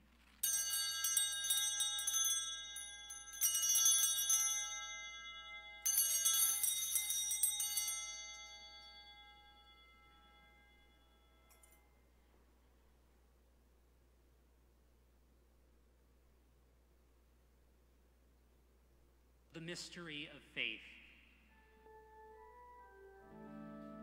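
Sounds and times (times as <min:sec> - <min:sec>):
small bells jangling: 0:00.4 - 0:12.0.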